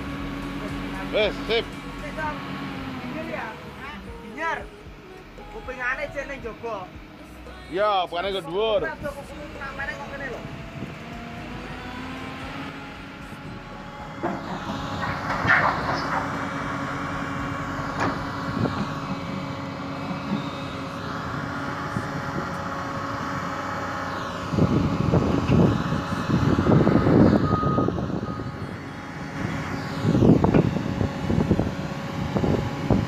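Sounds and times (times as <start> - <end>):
excavator engine running: 0.0 - 33.0
steel pipe scraping and clanking: 14.2 - 16.5.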